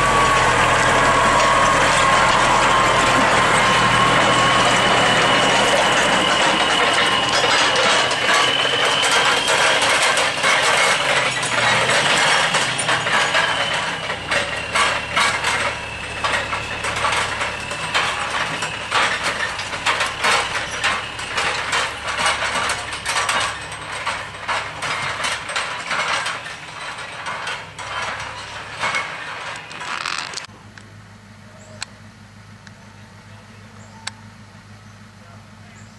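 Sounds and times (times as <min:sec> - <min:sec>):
high whine: 0:00.0 - 0:25.3
mechanical clattering and ticking: 0:00.0 - 0:30.5.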